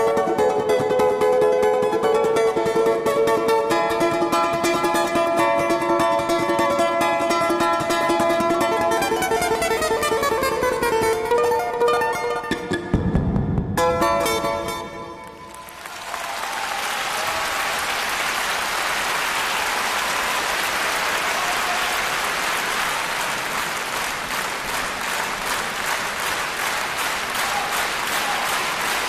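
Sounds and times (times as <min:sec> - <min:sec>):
plucked balalaika notes: 0:00.0 - 0:15.7
audience applause: 0:15.2 - 0:29.0.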